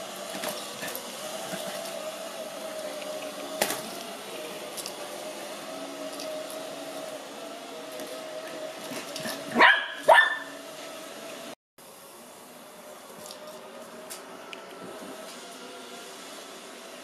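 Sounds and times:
robot vacuum humming: 0.0s - 17.0s
puppy yapping: 9.5s - 10.5s.

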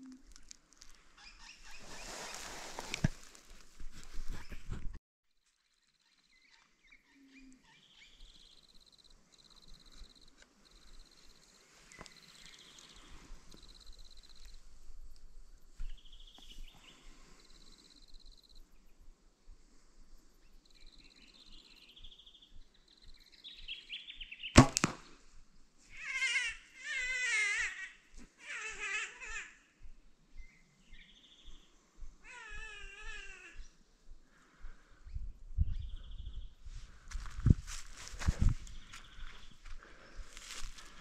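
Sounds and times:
bird chirps: 5.8s - 14.5s, 20.6s - 24.6s
faint high trilling calls: 6.0s - 14.6s, 25.9s - 33.8s
sharp crack of bow shot: 24.6s - 25.3s.

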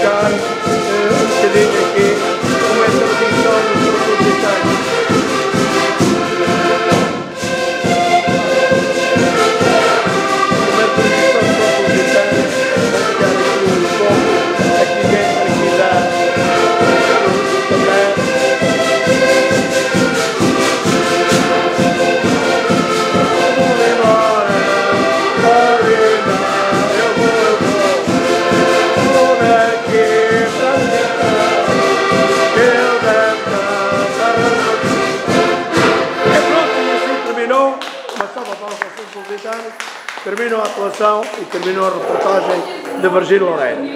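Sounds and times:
drum steady beat: 0.0s - 36.7s
accordions playing lively tune: 0.0s - 43.9s.

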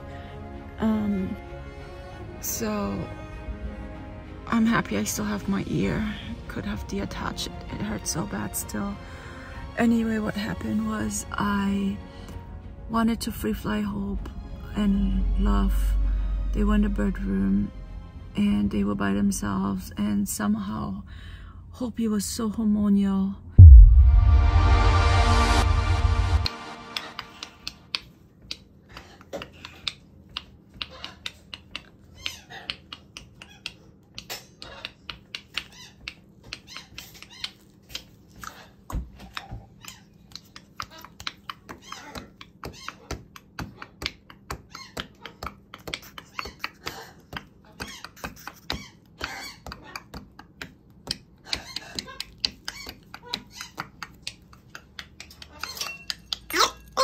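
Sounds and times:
parrots clicking and tapping: 28.0s - 56.6s
parrot calls: 30.8s - 38.1s, 39.3s - 50.1s.

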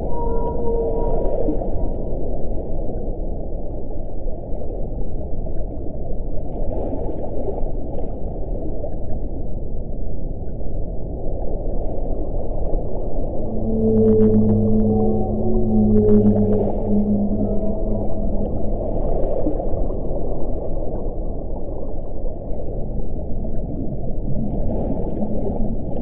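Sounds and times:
low moaning whale call: 0.0s - 3.2s, 13.1s - 21.6s, 23.5s - 26.0s
muffled underwater rushing: 0.0s - 9.9s, 10.8s - 26.0s.

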